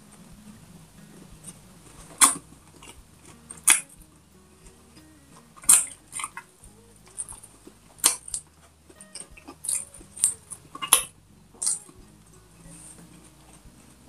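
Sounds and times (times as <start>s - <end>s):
wet chewing clicks and smacks: 7.2s - 12.0s.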